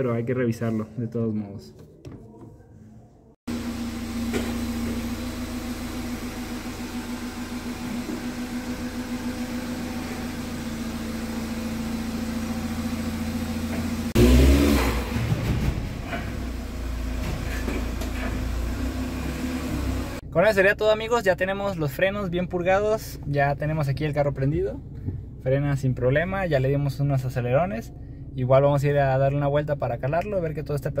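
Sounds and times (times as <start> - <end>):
car engine revving: 3.5 - 20.2
car engine idling: 3.5 - 20.7.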